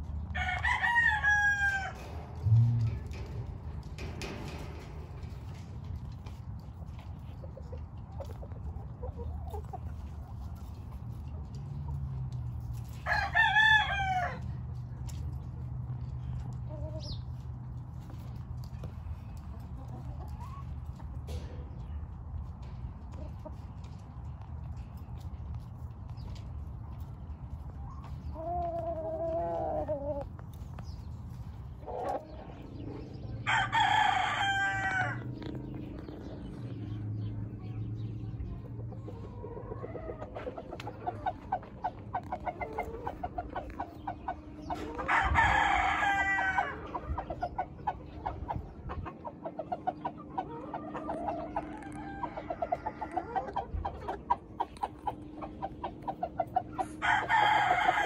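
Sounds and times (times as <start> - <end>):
roosters crowing: 0.0 - 5.7, 12.6 - 14.8, 31.8 - 37.0, 39.1 - 47.5, 50.1 - 58.0
quiet clucking: 2.0 - 12.8, 35.2 - 45.1, 46.6 - 57.0.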